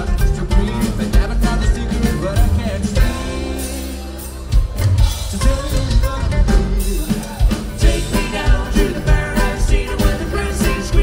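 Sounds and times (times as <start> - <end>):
bluegrass band playing: 0.0 - 11.0
drum kit beat: 0.0 - 11.0
person singing: 0.0 - 11.0.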